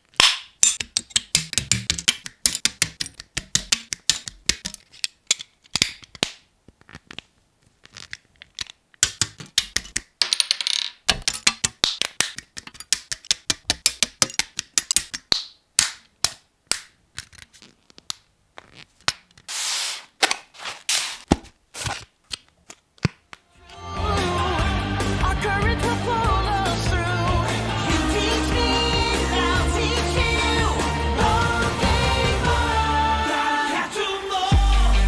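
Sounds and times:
plastic parts clicking and snapping: 0:00.0 - 0:18.2.

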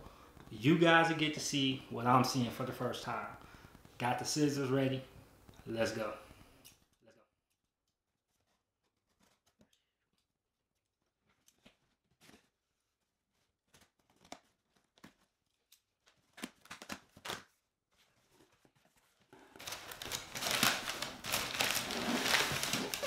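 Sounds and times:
cardboard and packing rustling: 0:11.0 - 0:23.0.

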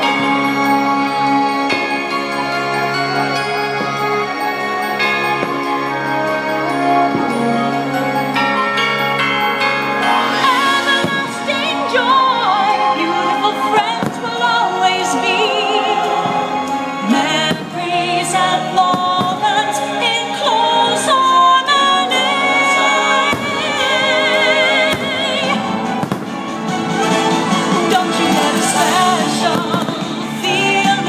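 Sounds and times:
orchestral music with operatic vocals: 0:00.0 - 0:31.0
firework bangs: 0:23.2 - 0:30.4.

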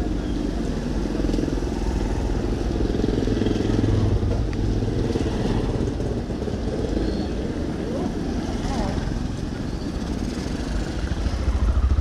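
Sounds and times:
street traffic: 0:00.0 - 0:12.0
motorcycle engine running: 0:08.4 - 0:12.0.

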